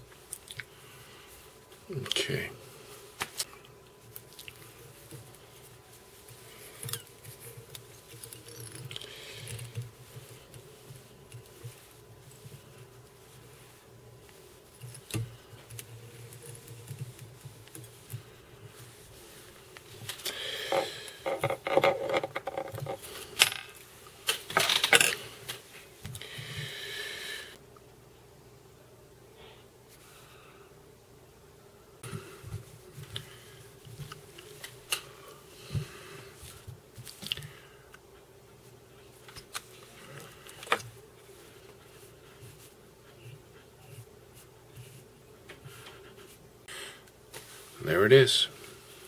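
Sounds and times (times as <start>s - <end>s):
soft scratchy rustle: 0.2s - 20.8s, 35.6s - 46.5s, 47.2s - 49.0s.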